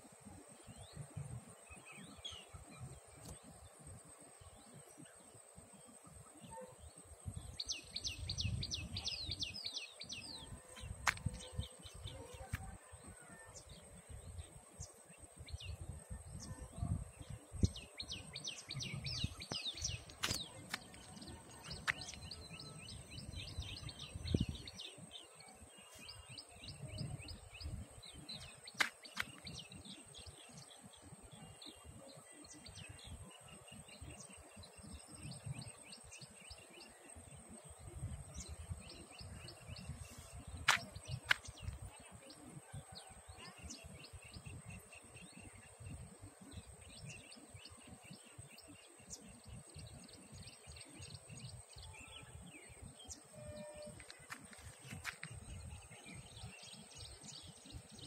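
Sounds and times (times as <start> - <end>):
wind on microphone: 7.1 - 25.1, 26.1 - 31.4, 37.2 - 58.0
small birds chirping: 17.2 - 33.0.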